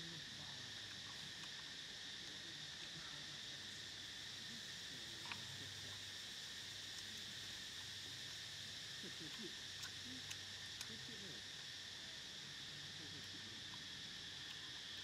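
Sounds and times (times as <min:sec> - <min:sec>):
insects chirring: 0:00.0 - 0:15.0
faint ticks: 0:00.9 - 0:03.0, 0:05.2 - 0:06.2, 0:06.8 - 0:11.7, 0:13.2 - 0:15.0.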